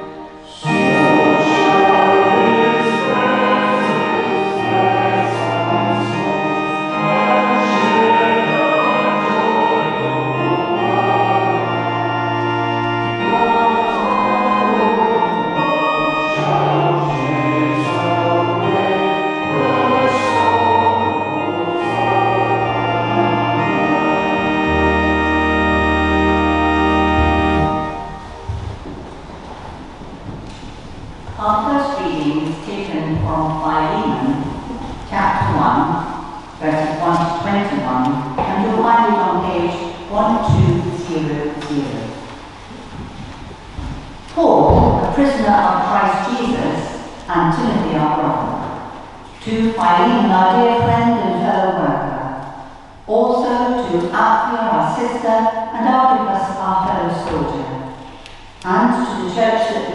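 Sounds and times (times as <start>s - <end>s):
church organ chords: 0.0s - 43.9s.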